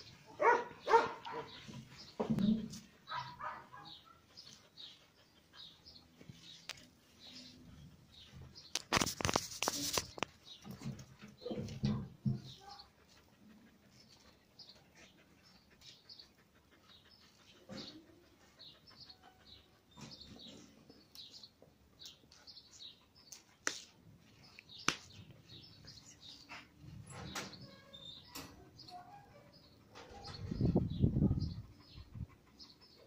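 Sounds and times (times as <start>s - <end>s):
dog panting: 2.9s - 8.7s, 12.4s - 23.6s, 24.2s - 26.9s, 29.6s - 33.0s.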